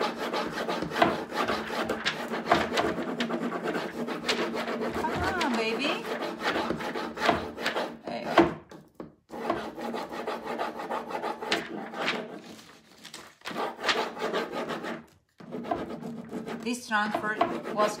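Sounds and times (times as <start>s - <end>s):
plastic sheet rustling and crackling: 5.0s - 6.0s, 12.0s - 13.5s.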